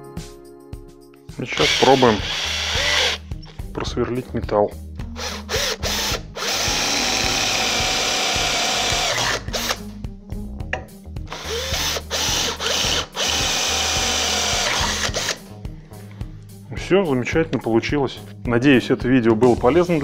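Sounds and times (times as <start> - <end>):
drill boring into steel: 1.6 - 3.2, 5.2 - 9.8, 11.3 - 15.4.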